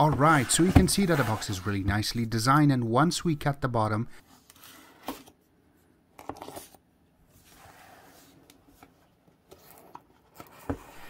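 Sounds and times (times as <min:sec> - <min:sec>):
cardboard rustling: 0:00.0 - 0:01.9.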